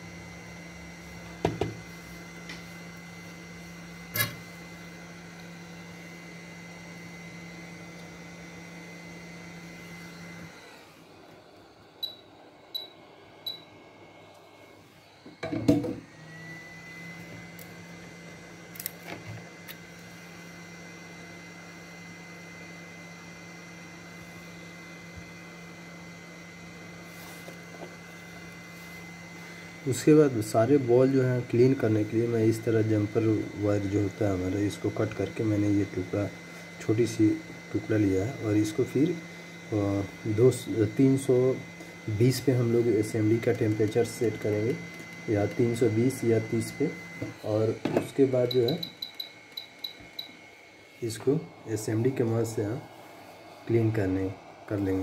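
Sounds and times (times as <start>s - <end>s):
hot-air station humming whine: 0.0s - 55.0s
short high beeps: 48.5s - 50.4s.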